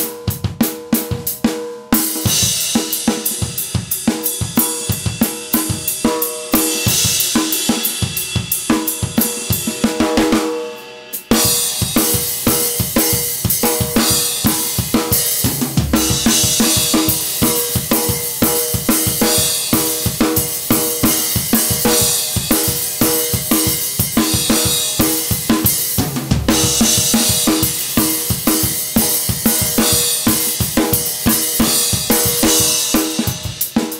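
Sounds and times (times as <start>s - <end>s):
rock drum kit groove: 0.0s - 33.9s
heavy low drum hit: 13.5s - 18.3s, 24.3s - 29.8s.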